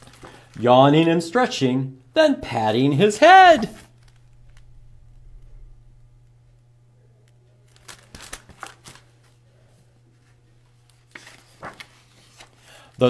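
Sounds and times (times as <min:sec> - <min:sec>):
book pages turning: 0:00.0 - 0:00.6, 0:07.7 - 0:09.4, 0:10.1 - 0:13.0.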